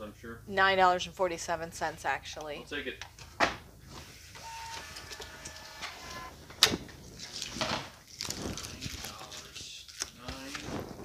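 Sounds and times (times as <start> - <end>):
label printer whine: 3.9 - 6.8.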